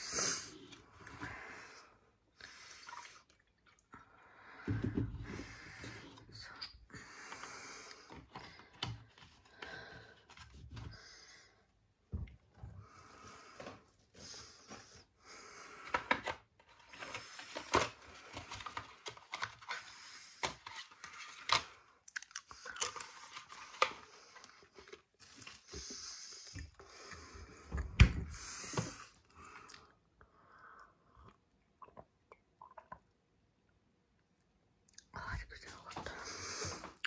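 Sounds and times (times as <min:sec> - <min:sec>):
person chewing and crunching: 0:22.0 - 0:23.5.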